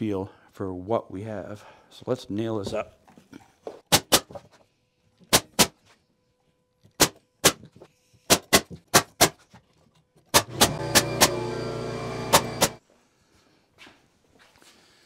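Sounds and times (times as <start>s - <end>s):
nail gun shots: 3.9s - 4.3s, 5.3s - 5.8s, 7.0s - 7.7s, 8.3s - 9.4s, 10.3s - 11.4s
air compressor humming: 10.4s - 12.8s.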